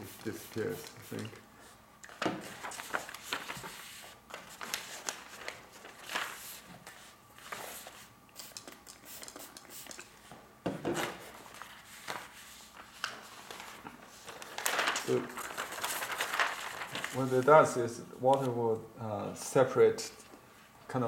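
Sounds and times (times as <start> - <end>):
paper rustling and crinkling: 2.1 - 8.1, 10.9 - 17.8.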